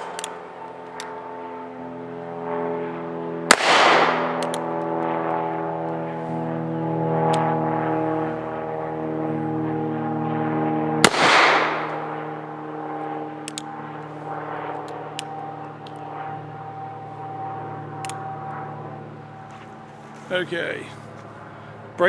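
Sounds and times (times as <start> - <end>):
steady engine drone: 0.0 - 22.0
metallic clicks of gun handling: 0.1 - 1.2, 4.4 - 5.1, 13.4 - 13.7
revolver gunshot with echo: 3.5 - 4.5, 11.0 - 12.2.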